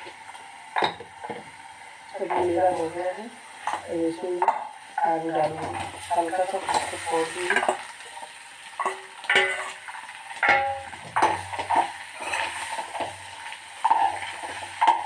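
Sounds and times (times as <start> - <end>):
metal spatula scraping steel pan: 8.8 - 13.2.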